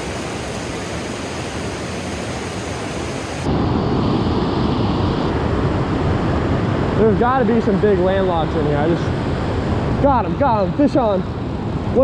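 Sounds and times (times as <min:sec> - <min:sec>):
creek water rushing over rocks: 0:00.0 - 0:03.5.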